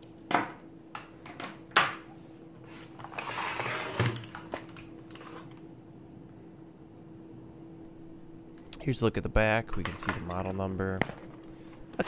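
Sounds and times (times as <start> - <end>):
keyboard sliding on table: 3.0 - 4.2.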